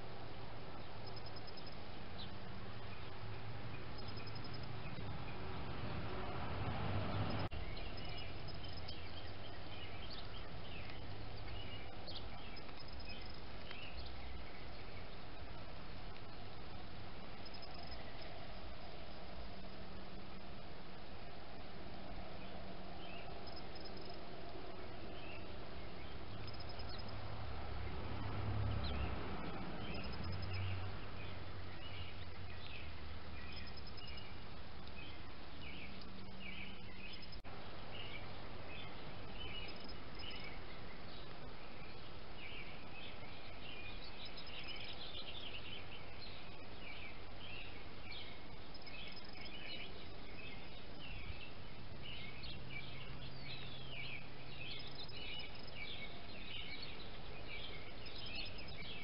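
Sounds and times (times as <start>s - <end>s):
steady background hiss: 0.0s - 59.0s
birds chirping and singing: 6.8s - 18.5s, 27.8s - 59.0s.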